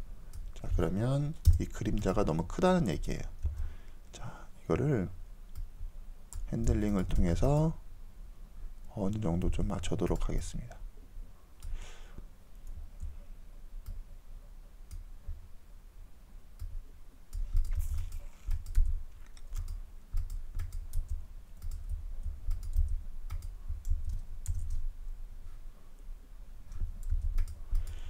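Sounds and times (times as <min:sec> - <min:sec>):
mouse and keyboard clicks: 0:17.3 - 0:24.8.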